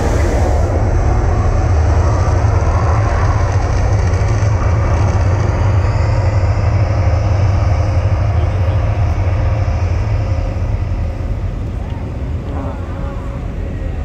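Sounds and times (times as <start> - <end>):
even hiss: 0.0 - 0.8
deep steady rumble: 0.0 - 14.0.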